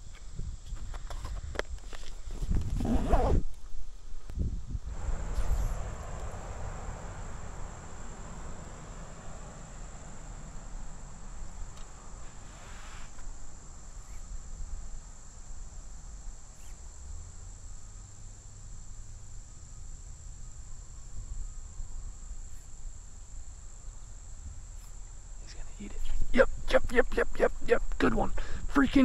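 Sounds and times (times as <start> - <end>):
low outdoor rumble: 3.8 - 29.0
insect singing high-pitched tone: 4.4 - 29.0
brief hiss: 4.9 - 7.9, 11.7 - 13.3.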